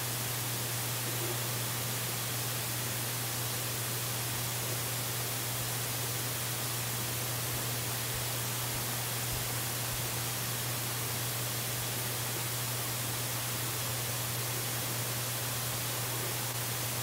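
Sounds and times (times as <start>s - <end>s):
microphone hiss: 0.0s - 17.0s.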